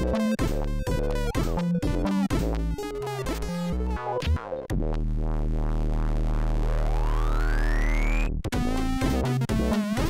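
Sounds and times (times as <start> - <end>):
chiptune music: 0.0 - 4.4, 7.3 - 10.0.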